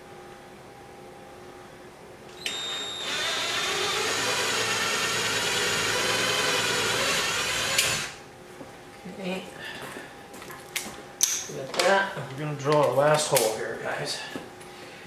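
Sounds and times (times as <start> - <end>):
drill click: 2.3 - 8.2
power drill boring: 2.4 - 8.2.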